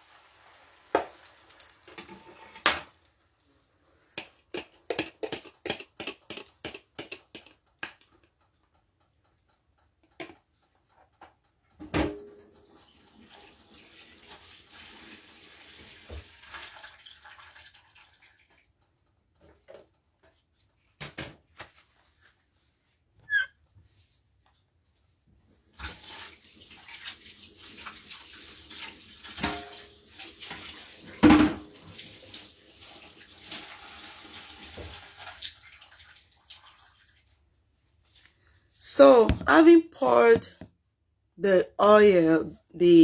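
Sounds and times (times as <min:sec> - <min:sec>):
egg sizzling in oil: 0:00.0 - 0:02.2.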